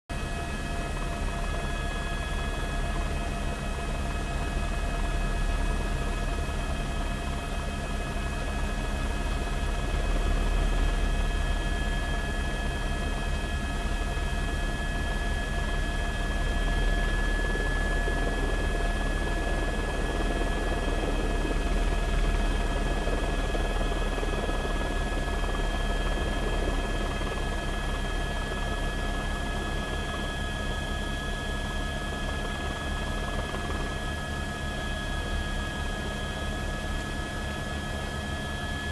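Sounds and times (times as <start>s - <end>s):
helicopter hovering: 0.1s - 38.9s.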